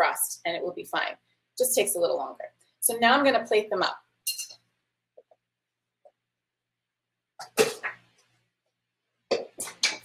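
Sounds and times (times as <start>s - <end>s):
utensil clinking on plate: 4.3s - 4.6s.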